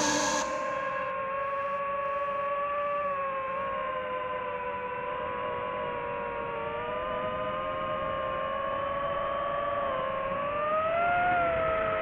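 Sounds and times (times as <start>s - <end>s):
drone propellers whining: 0.0s - 1.1s.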